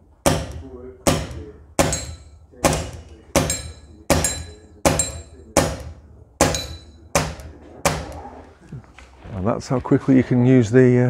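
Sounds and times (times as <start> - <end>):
steel targets pinging: 0.2 - 8.2.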